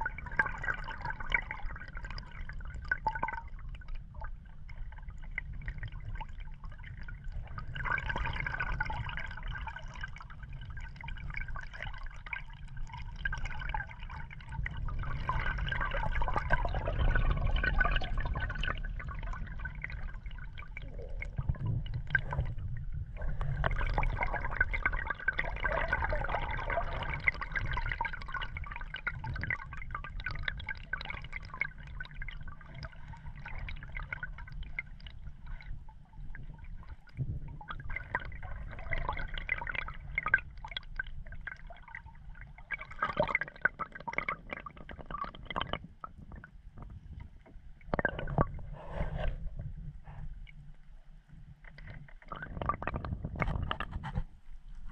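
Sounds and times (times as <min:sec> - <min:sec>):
muffled underwater gurgling: 0:00.0 - 0:50.4, 0:51.5 - 0:54.9
low rumble: 0:14.4 - 0:27.6.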